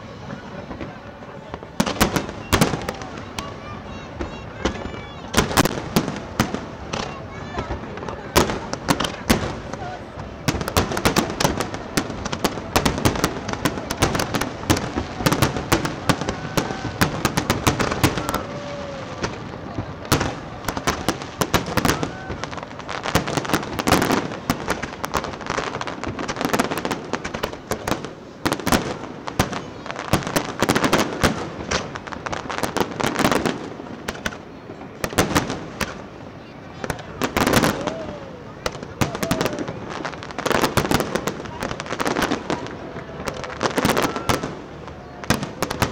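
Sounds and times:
fireworks bangs and crackles: 0:00.0 - 0:45.9.

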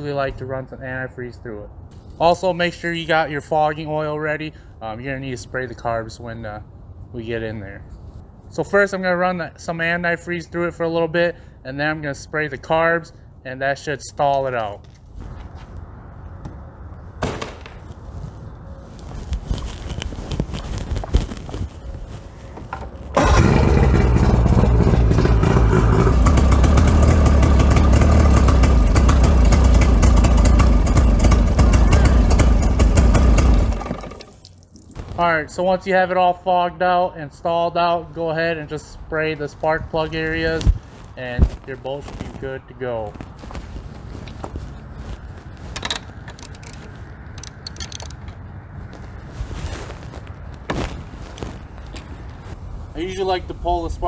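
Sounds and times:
outboard motor running: 0:23.2 - 0:34.4
socket ratchet clicking: 0:45.8 - 0:46.8, 0:47.4 - 0:48.2.

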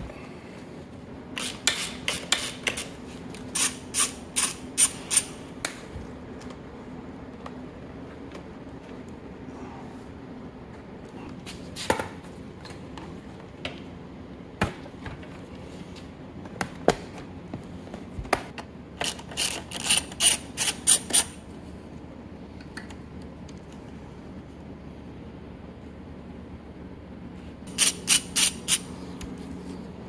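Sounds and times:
ratchet wrench ratcheting: 0:19.0 - 0:21.4, 0:27.7 - 0:28.8.

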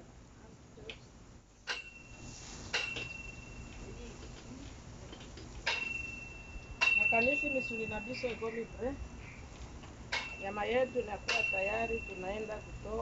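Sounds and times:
metal tongs clinking on grill grate: 0:01.7 - 0:08.9, 0:10.1 - 0:13.0.

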